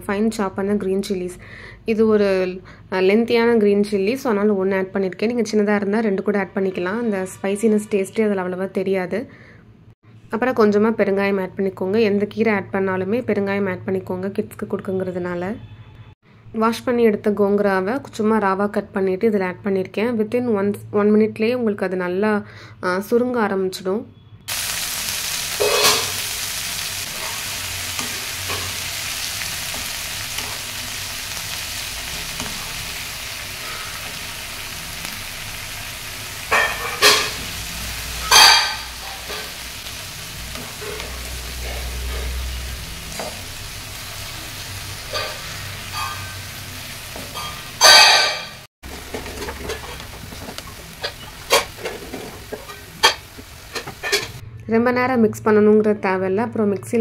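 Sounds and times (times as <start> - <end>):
leaves sizzling in hot oil: 24.5 - 54.4
wooden spatula scraping pan: 48.9 - 54.4.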